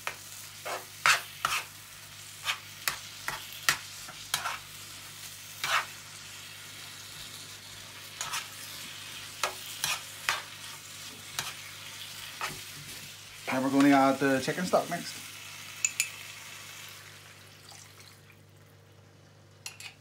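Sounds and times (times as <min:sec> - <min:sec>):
low sizzle of frying: 0:00.0 - 0:20.0
spatula scraping frying pan: 0:00.6 - 0:06.2, 0:08.0 - 0:14.1.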